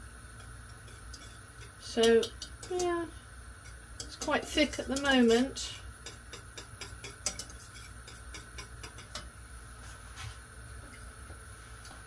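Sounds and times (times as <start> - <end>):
faint steady hum: 0.0 - 12.0
whisk clicking against saucepan: 0.4 - 9.3.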